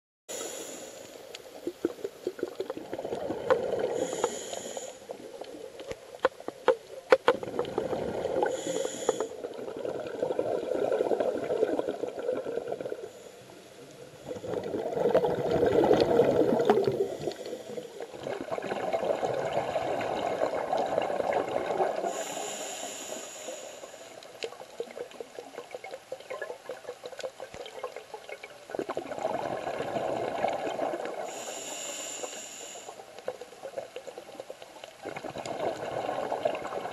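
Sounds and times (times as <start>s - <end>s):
regulator inhale hiss: 0.3s - 1.8s, 3.8s - 5.2s, 8.4s - 9.5s, 13.0s - 14.7s, 16.7s - 18.2s, 22.0s - 24.6s, 31.2s - 33.4s
exhaled bubbles rushing: 1.6s - 4.1s, 7.3s - 8.6s, 9.4s - 13.1s, 14.2s - 22.2s, 24.8s - 31.3s, 35.0s - 36.9s.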